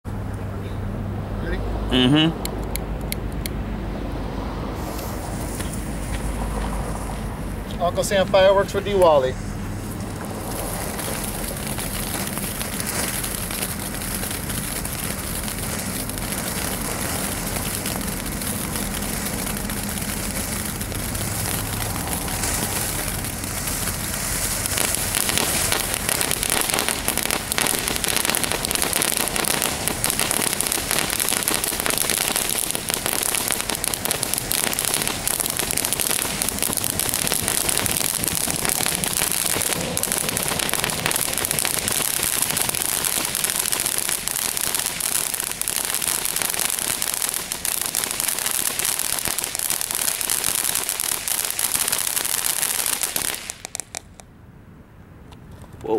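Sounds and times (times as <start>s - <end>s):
firework fountain hissing and crackling: 4.6s - 54.3s.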